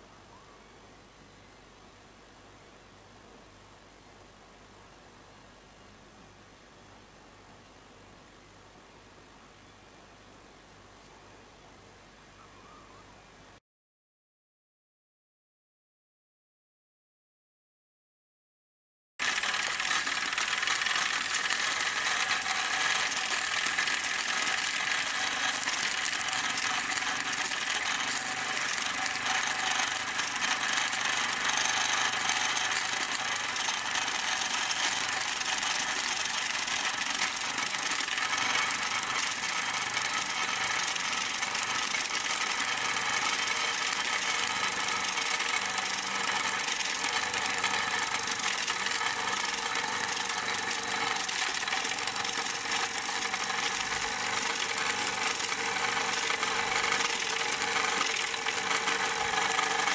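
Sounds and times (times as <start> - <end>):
toy steam engine chuffing: 19.2 - 59.9.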